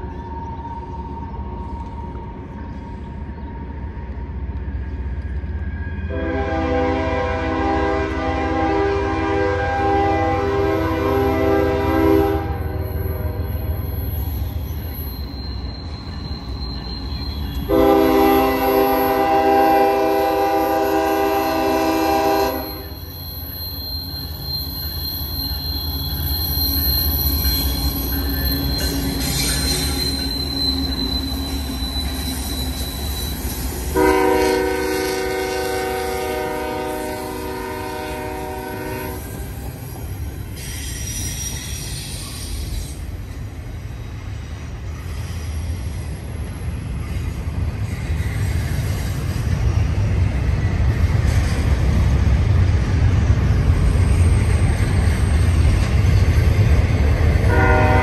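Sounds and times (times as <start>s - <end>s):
train rumbling: 0.0s - 58.0s
wheel flanges squealing on rail: 0.0s - 58.0s
locomotive air horn blasts: 6.1s - 13.7s, 17.7s - 22.9s, 33.9s - 39.4s, 57.5s - 58.0s.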